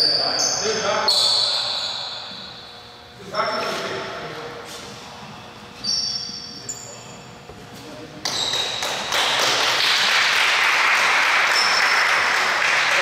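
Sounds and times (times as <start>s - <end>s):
shoes squeaking on gym floor: 0.0s - 2.8s, 5.7s - 8.8s.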